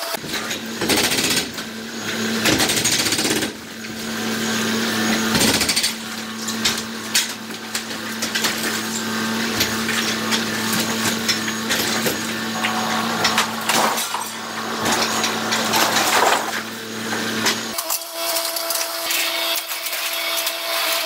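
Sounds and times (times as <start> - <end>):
excavator engine running: 0.1 - 17.8
concrete debris clattering down: 5.5 - 16.8.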